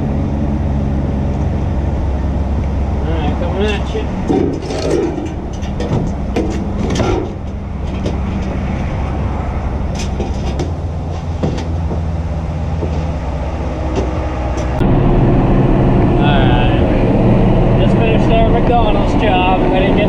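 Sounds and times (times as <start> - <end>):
diesel truck engine idling: 0.0 - 20.0
metal bar knocking and clanking: 3.3 - 8.6.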